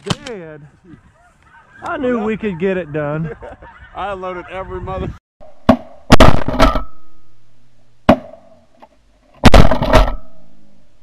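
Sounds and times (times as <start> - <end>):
shotgun blasts: 9.4 - 10.4.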